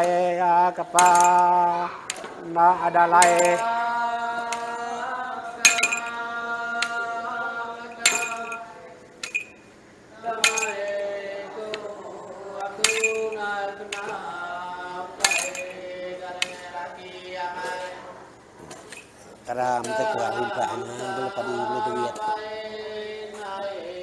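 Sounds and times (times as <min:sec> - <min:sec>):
man chanting: 0:00.0 - 0:08.9, 0:19.3 - 0:24.0
staffs clinking on floor: 0:01.0 - 0:01.5, 0:03.2 - 0:03.8, 0:05.6 - 0:06.2, 0:08.0 - 0:09.6, 0:10.4 - 0:11.0, 0:12.8 - 0:14.2, 0:15.2 - 0:16.7, 0:18.6 - 0:19.2.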